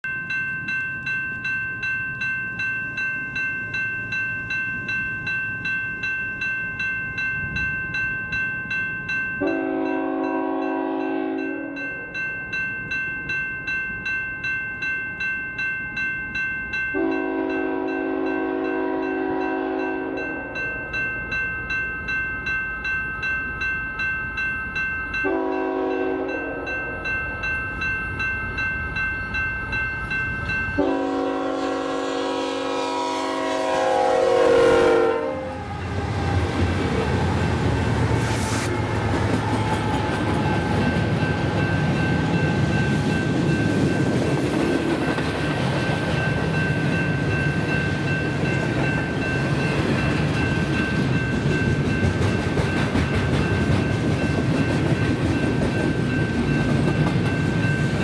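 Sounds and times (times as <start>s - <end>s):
crossing bell ringing: 0.0s - 58.0s
train horn blasts: 9.4s - 12.0s, 17.0s - 20.5s, 25.2s - 26.7s, 30.8s - 36.5s.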